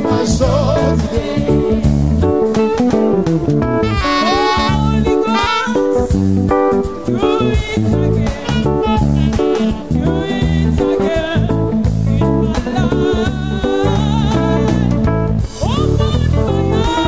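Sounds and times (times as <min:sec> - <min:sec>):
band music: 0:00.0 - 0:17.0
wavering lead melody: 0:03.8 - 0:06.1.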